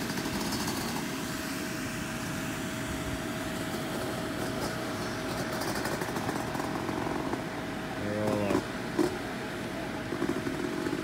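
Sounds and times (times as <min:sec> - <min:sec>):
mechanical hum with whine: 0:00.0 - 0:11.0.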